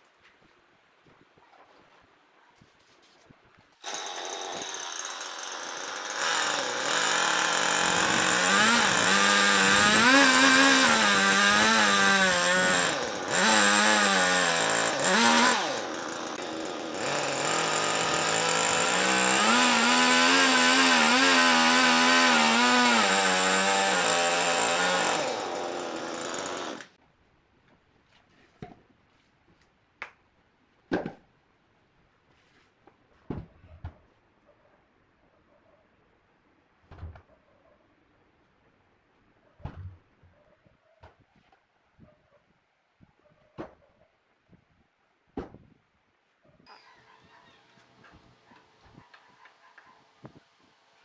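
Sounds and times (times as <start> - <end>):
chainsaw cutting log: 3.8 - 27.0.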